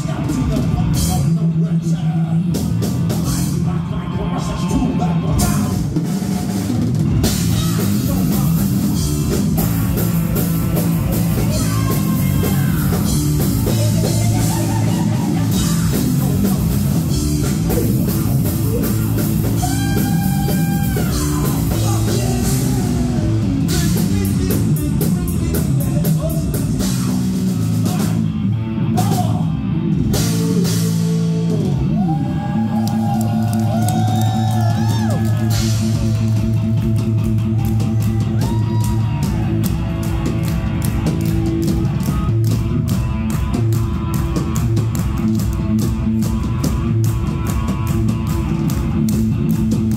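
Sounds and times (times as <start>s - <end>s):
heavy metal band playing live: 0.0s - 49.9s.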